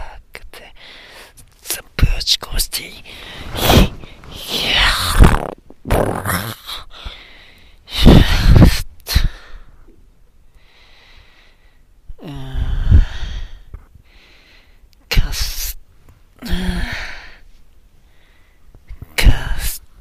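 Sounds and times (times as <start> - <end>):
person shouting and gasping: 16.4 - 17.4.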